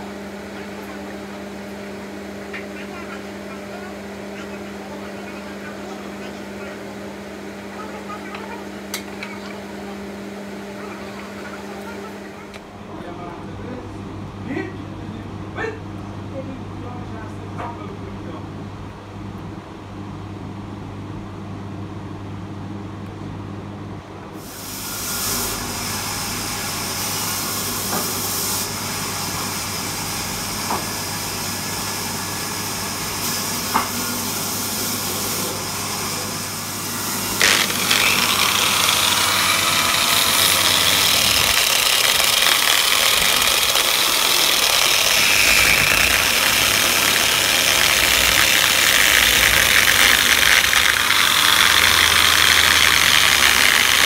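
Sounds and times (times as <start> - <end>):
orbital sander running: 36.2 - 54.0.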